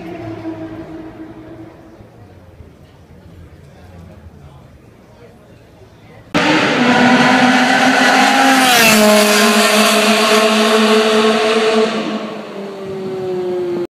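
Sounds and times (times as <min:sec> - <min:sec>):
race car engine passing by: 0:06.3 - 0:13.8.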